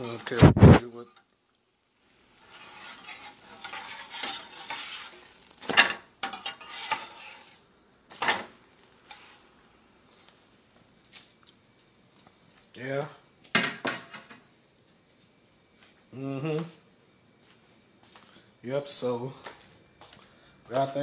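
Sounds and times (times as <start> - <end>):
metal spatula scraping a pan: 0.0 - 1.3, 2.1 - 9.6
pancake sizzling in a frying pan: 0.0 - 16.1.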